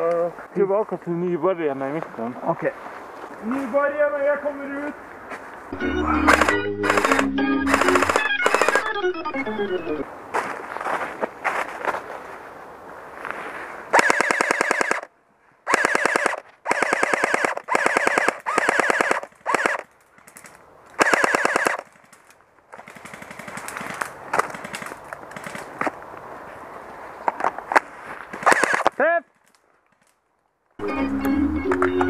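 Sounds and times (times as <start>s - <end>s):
airsoft rifle full-auto bursts: 6.3s - 9.0s, 13.9s - 15.1s, 15.7s - 19.9s, 21.0s - 22.1s, 22.8s - 25.7s, 28.4s - 28.9s.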